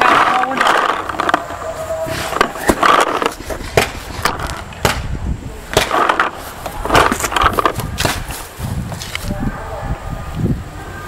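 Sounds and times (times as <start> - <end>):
sharp knocks and pops: 2.4 - 9.1.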